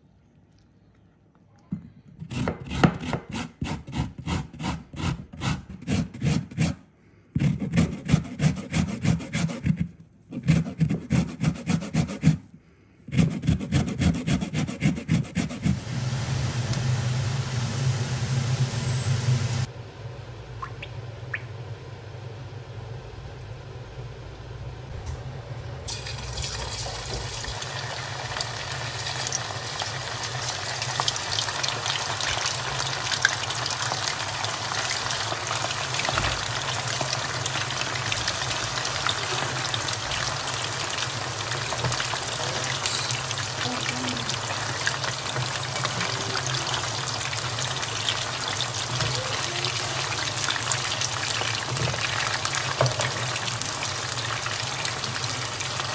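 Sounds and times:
meat deep-frying in oil: 15.7 - 19.7, 25.8 - 55.9
steady low hum: 15.8 - 26.4.

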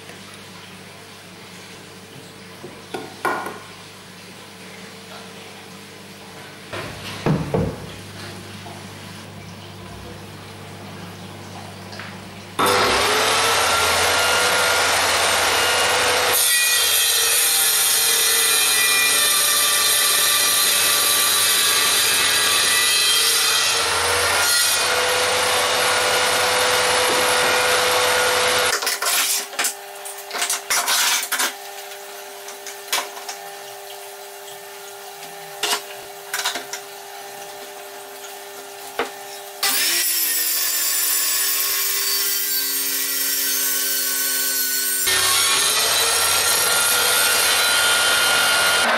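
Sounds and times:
table saw whining: 12.6 - 28.8, 39.3 - 48.9.

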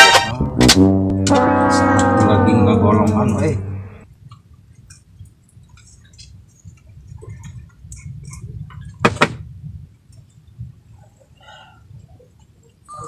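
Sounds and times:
low steady rumble: 0.3 - 4.3.

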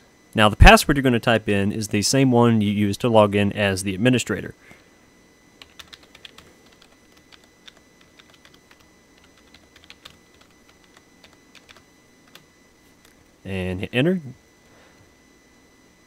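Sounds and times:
keyboard keystrokes: 5.6 - 12.4.

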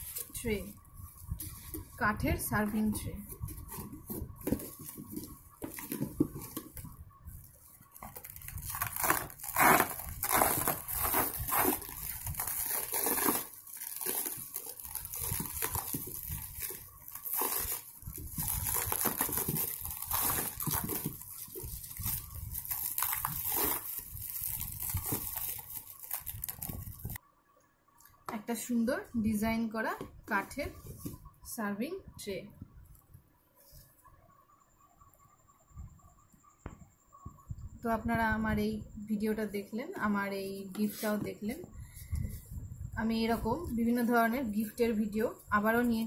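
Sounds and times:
plastic wrap crinkling: 3.2 - 27.2
cardboard and foam scraping: 8.0 - 25.6.

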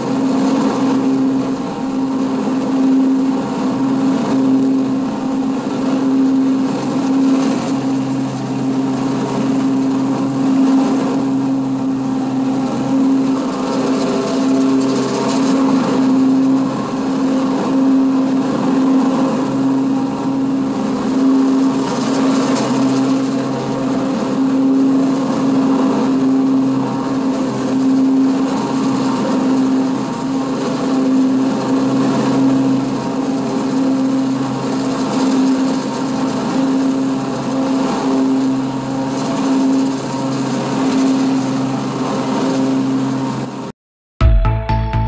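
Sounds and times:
riding lawn mower engine hum: 0.0 - 43.7
music: 44.2 - 45.0.

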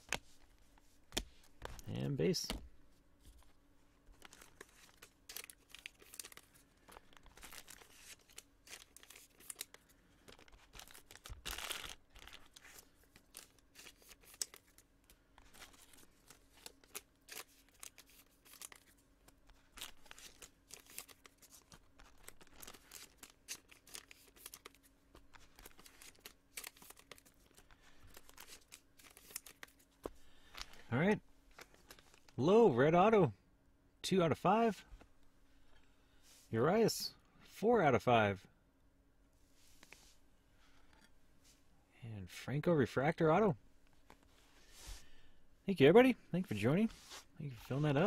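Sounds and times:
packaging crinkling and tearing: 4.1 - 29.8.

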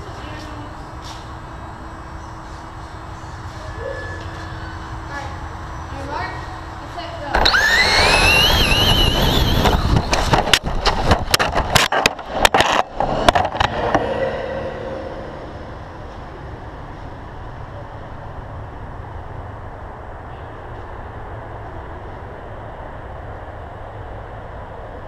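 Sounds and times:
low background hum: 0.0 - 25.0
toy car motor whining: 7.4 - 10.4.

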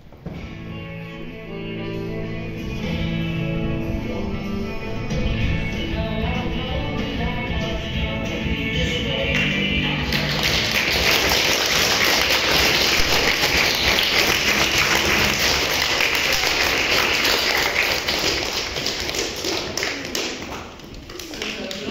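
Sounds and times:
audience applauding: 9.4 - 21.9.

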